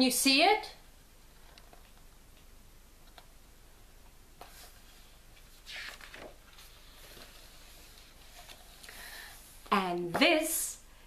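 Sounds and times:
picture book pages rustling: 0:04.4 - 0:08.9.

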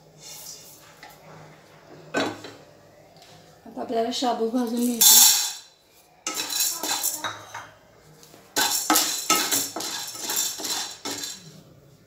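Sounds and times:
pearls rattling in a pan: 0:04.7 - 0:05.6, 0:06.3 - 0:07.3, 0:08.6 - 0:11.5.

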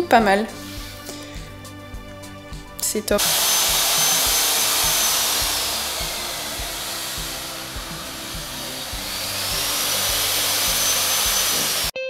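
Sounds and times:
background music with beat: 0:00.0 - 0:11.9
shop vacuum motor whine: 0:03.2 - 0:11.9.

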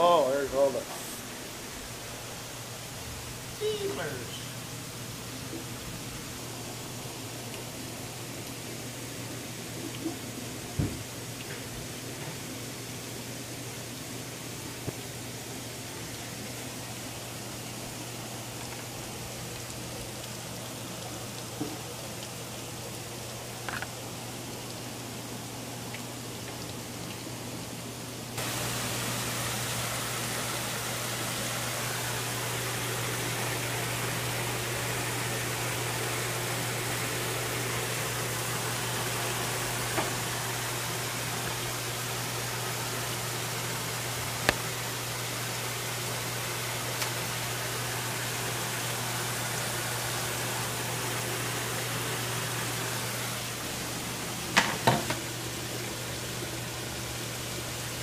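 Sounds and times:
bubbling churning water: 0:00.0 - 0:58.0
low pump hum: 0:00.0 - 0:58.0.

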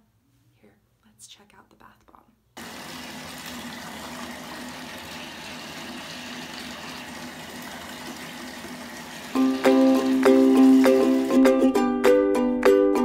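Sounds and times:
ukulele music: 0:09.4 - 0:13.0.

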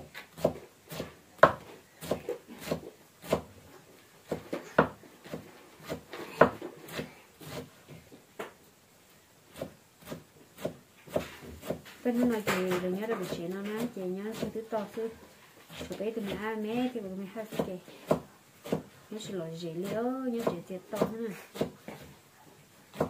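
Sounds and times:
knife chopping on wooden block: 0:00.1 - 0:03.5, 0:04.3 - 0:07.7, 0:09.5 - 0:14.6, 0:17.5 - 0:18.9, 0:19.8 - 0:22.0.

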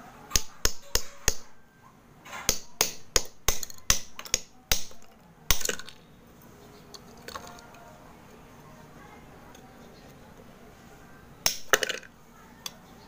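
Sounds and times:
hammer tapping steel blade: 0:00.3 - 0:01.5.

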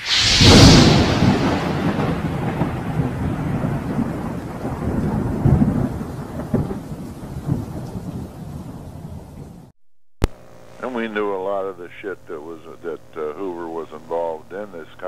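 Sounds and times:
blast: 0:00.0 - 0:04.3
low thunder-like rumble: 0:00.2 - 0:09.7.

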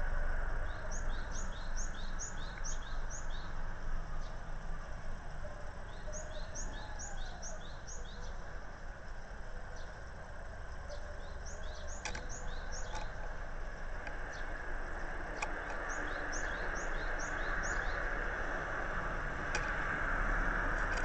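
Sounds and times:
sharp click: 0:12.0 - 0:13.2.

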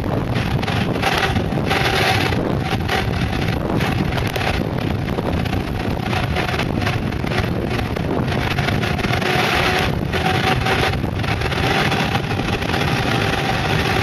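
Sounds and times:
wheels rolling on asphalt: 0:00.0 - 0:14.0
wind buffeting microphone: 0:00.0 - 0:14.0.

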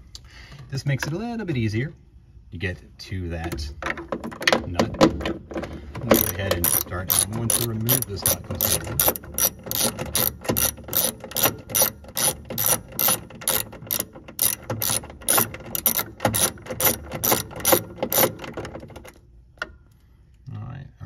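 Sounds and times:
ratcheting socket wrench clicking: 0:06.0 - 0:19.2.

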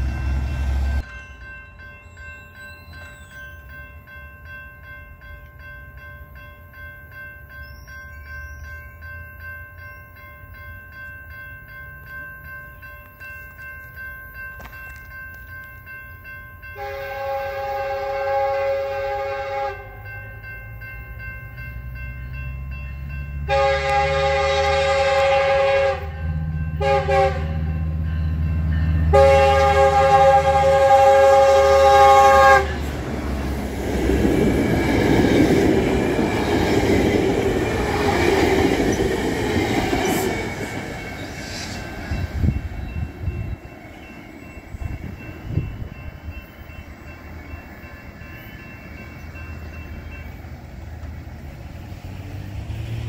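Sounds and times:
train passing wheel noise: 0:00.0 - 0:53.0
train air horn blasts: 0:16.8 - 0:20.0, 0:23.4 - 0:27.9, 0:29.0 - 0:32.9.

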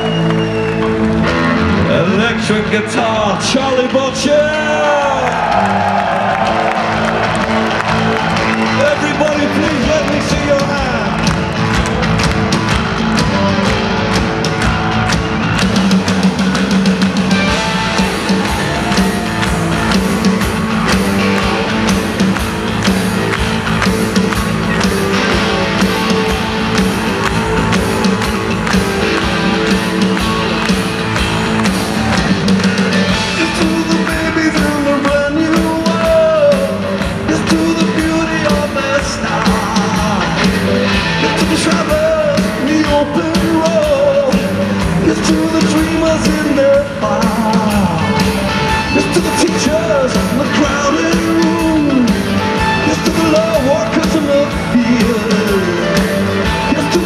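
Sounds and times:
live rock band playing: 0:00.0 - 0:57.0
person singing: 0:32.9 - 0:57.0.

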